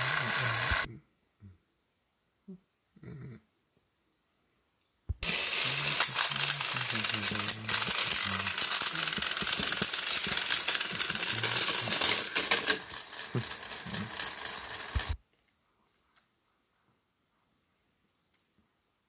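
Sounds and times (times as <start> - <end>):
toy motor whirring rattle: 0.0 - 0.9, 5.2 - 15.2.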